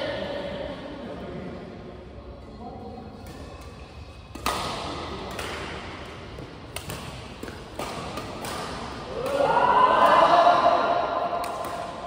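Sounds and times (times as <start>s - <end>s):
badminton racket smacks: 4.3s - 9.5s, 11.4s - 12.0s.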